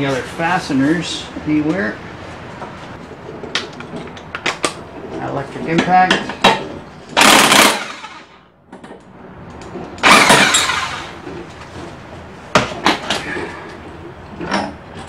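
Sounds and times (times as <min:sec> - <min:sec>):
impact wrench hammering: 0:07.2 - 0:08.3, 0:10.0 - 0:11.2.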